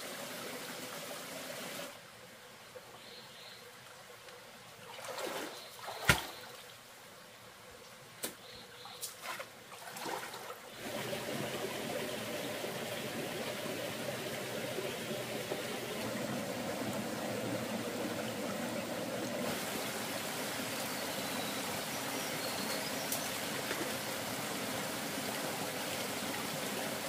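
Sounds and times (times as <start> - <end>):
rush of water: 0.0 - 2.2, 9.0 - 27.0
water splashes: 4.8 - 6.8, 8.9 - 27.0
water trickling: 9.8 - 27.0.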